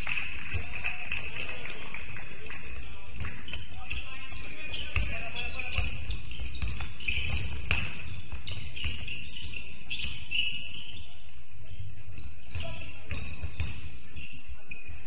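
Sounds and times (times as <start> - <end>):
sneakers squeaking on floor: 2.8 - 15.0
basketball bouncing: 5.0 - 9.2.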